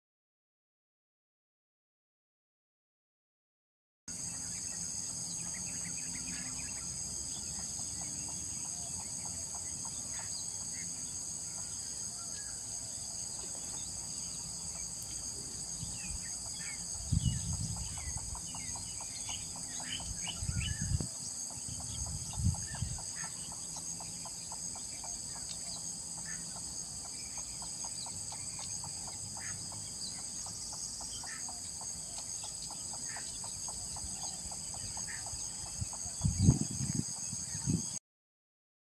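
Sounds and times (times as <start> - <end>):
high insect drone: 4.1 - 38.0.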